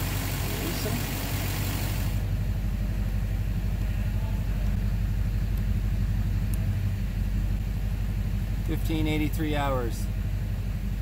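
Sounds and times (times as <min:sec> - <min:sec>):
engine knock: 0:00.0 - 0:05.8
diesel engine idling: 0:00.0 - 0:11.0.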